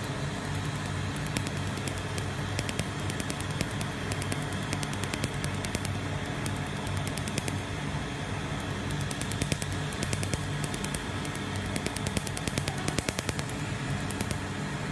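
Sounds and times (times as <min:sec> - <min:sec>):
laser pulses snapping: 0:00.0 - 0:07.7, 0:08.6 - 0:14.5
cooling fan hum: 0:00.0 - 0:14.9.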